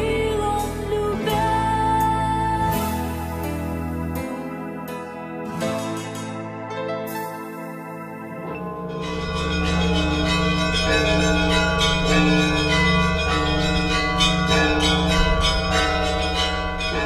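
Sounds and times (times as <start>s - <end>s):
large bell hum: 7.9s - 17.0s.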